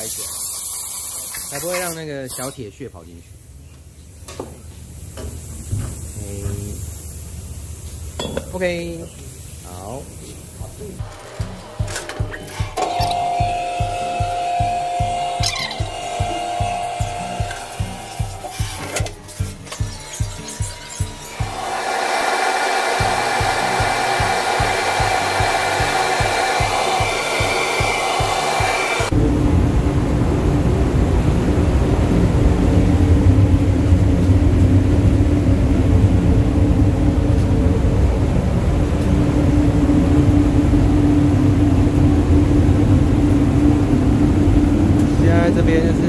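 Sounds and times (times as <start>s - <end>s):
extraction fan rushing and humming: 1.6s - 46.0s
background music with steady beat: 10.7s - 29.2s.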